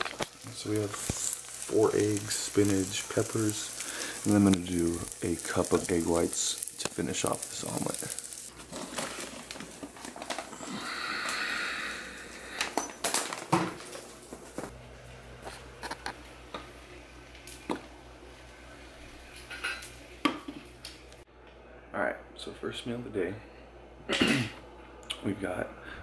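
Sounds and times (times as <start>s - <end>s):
box rustling: 8.6s - 10.5s.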